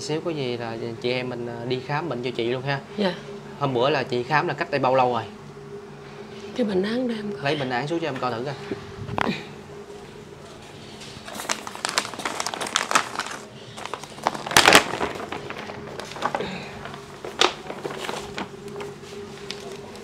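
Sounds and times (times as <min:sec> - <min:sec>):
paper rustling and crinkling: 0:10.5 - 0:20.0.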